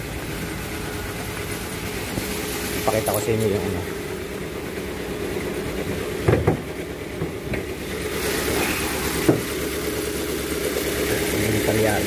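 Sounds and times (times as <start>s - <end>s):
car engine idling with misfire: 0.0s - 12.0s
car hood knocks: 6.2s - 7.7s, 9.2s - 9.6s.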